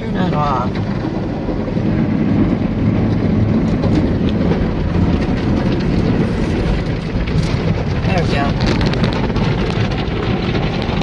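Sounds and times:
car wash brushes and water spray: 0.0s - 11.0s.

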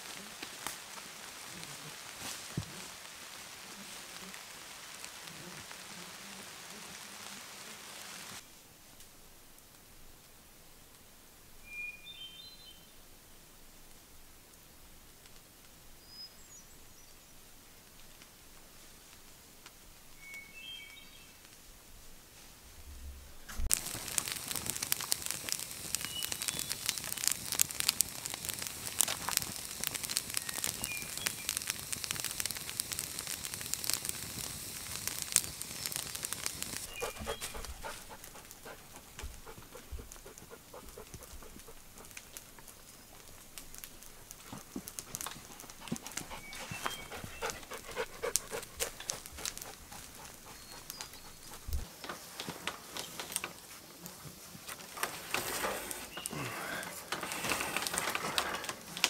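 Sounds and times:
campfire crackling and popping: 0.0s - 12.2s, 13.8s - 59.0s
birds chirping: 24.8s - 27.6s, 28.6s - 31.9s, 35.7s - 41.9s, 45.2s - 52.2s, 55.9s - 56.8s
dog panting: 37.0s - 42.3s, 45.2s - 51.9s.

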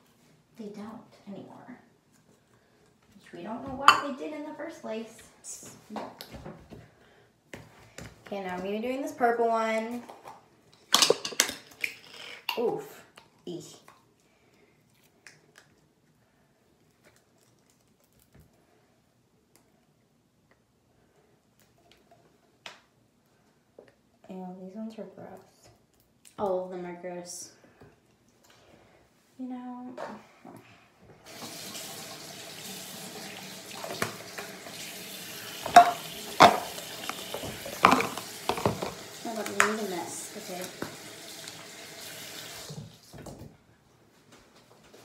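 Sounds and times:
tap water running into sink: 31.3s - 43.0s.

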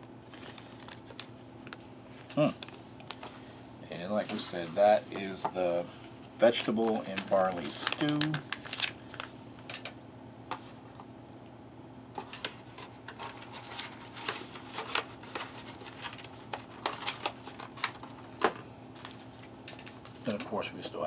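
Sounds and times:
steady low hum: 0.0s - 21.0s
plastic packets crackling: 0.2s - 3.4s, 6.4s - 9.8s, 13.2s - 18.4s, 19.0s - 20.7s.

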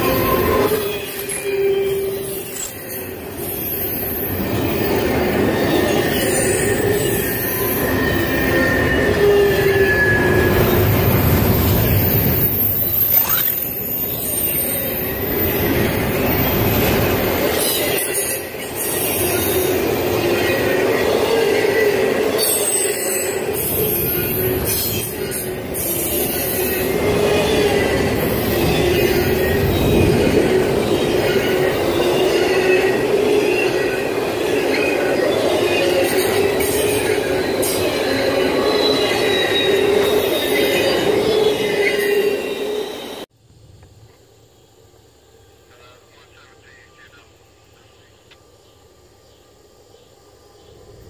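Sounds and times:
wheels squealing on rail: 0.0s - 43.3s
freight train rolling past: 0.0s - 46.6s
sharp clicks from train cars: 1.0s - 1.6s.

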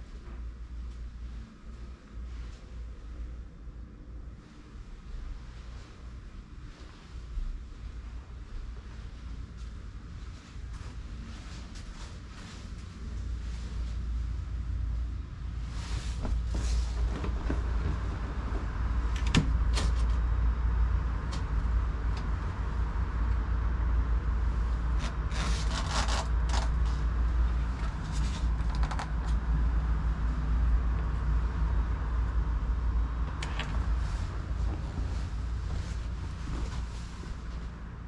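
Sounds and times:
low rumble: 0.0s - 38.0s
curtains rustling: 15.5s - 19.2s, 24.5s - 31.6s, 33.3s - 37.9s.

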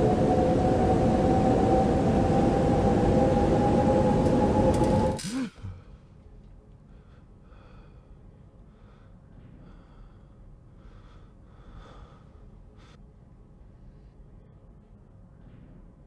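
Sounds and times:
loud steady hum: 0.0s - 5.8s
man breathing hard and gasping: 6.9s - 13.0s.

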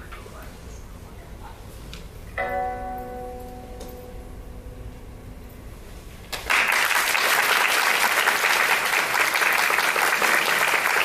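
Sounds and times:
pipa note ringing: 2.4s - 6.1s
audience applause: 6.3s - 11.0s.

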